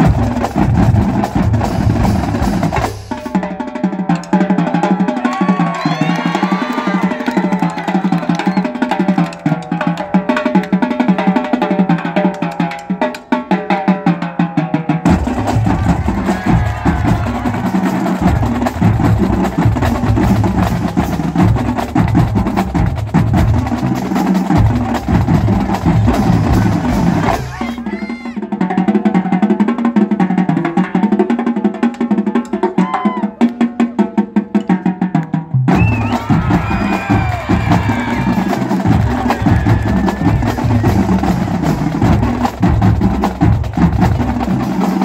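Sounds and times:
marching drumline cadence: 0:00.0 - 0:45.0
deep bass drum notes: 0:15.1 - 0:27.5, 0:35.7 - 0:44.6.

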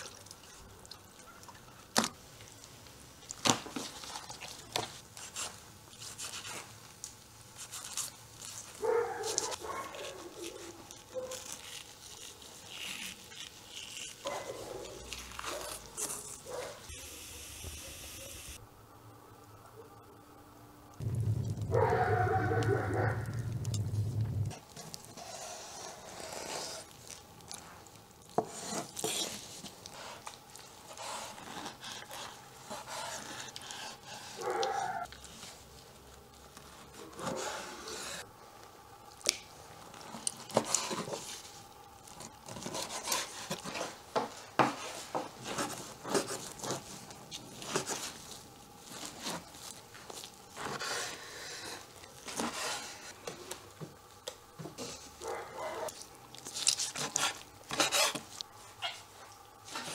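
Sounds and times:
wet meat rubbing: 0:00.0 - 0:16.8, 0:21.3 - 0:53.3.

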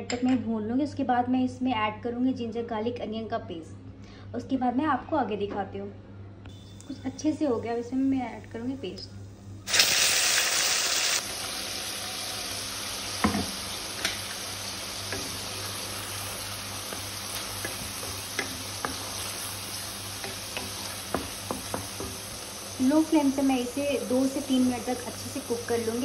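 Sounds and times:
paste sizzling in hot oil: 0:09.7 - 0:26.0
spatula tapping and scraping: 0:15.0 - 0:15.5, 0:16.8 - 0:22.3.

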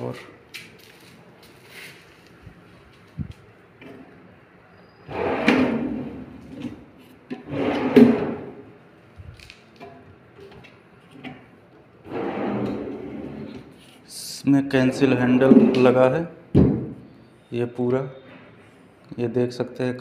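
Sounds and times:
wooden drawers sliding: 0:05.1 - 0:08.7, 0:12.0 - 0:13.8.

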